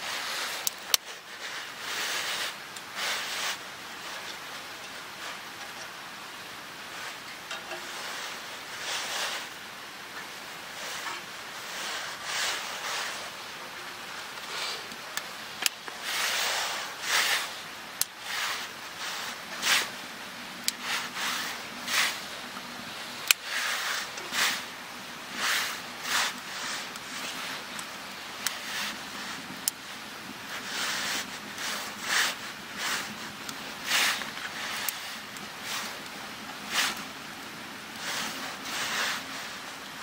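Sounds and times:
dry twigs rustling and snapping: 0.4s - 6.0s, 14.0s - 39.9s.

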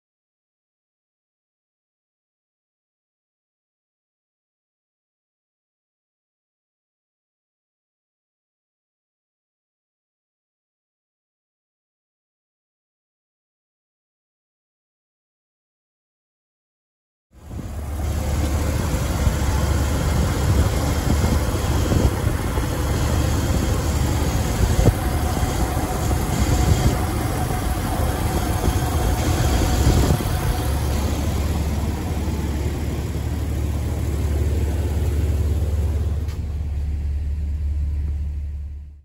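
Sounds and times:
car engine idling: 17.4s - 39.0s
engine belts turning: 17.4s - 39.0s.

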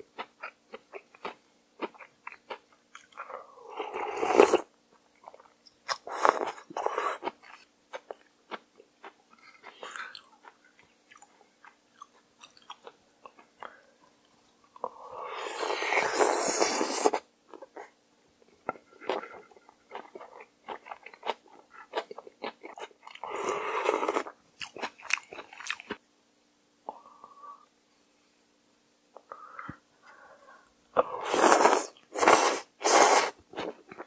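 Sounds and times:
loud slurping of noodles: 15.3s - 17.2s, 31.2s - 33.4s.

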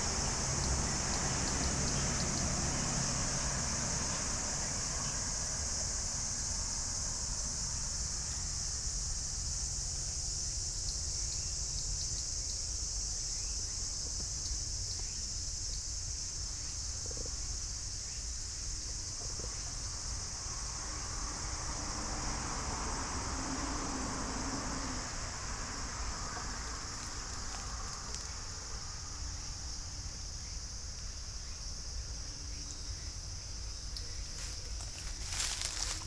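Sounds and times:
insects buzzing: 0.0s - 36.0s.

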